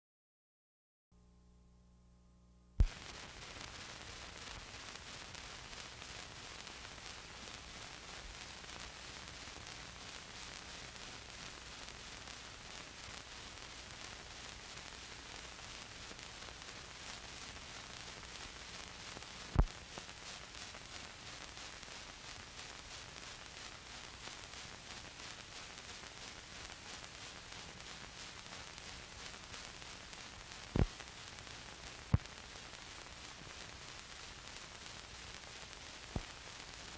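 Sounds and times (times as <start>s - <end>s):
film hiss and static: 1.2s - 36.9s
sharp pops: 30.7s - 31.0s.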